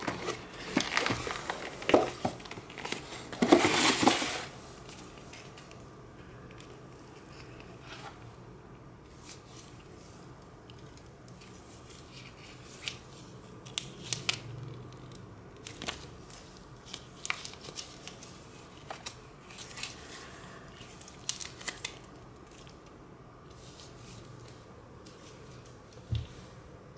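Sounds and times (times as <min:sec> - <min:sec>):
plastic film crinkling: 0:00.0 - 0:05.8, 0:10.7 - 0:22.9.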